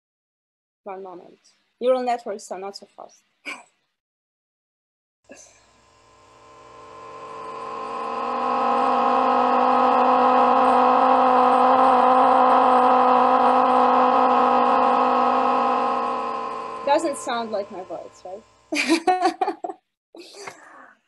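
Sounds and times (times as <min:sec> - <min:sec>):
synthetic droning tone: 0:05.3 - 0:18.8.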